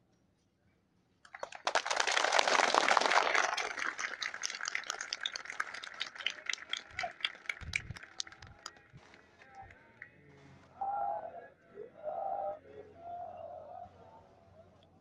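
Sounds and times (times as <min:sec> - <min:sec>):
people clapping: 0:01.2 - 0:10.2.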